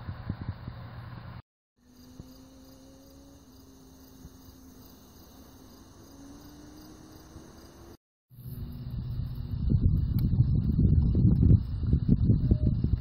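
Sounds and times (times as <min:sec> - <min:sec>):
crickets singing: 0:01.8 - 0:08.0
faint low drone: 0:01.8 - 0:13.0.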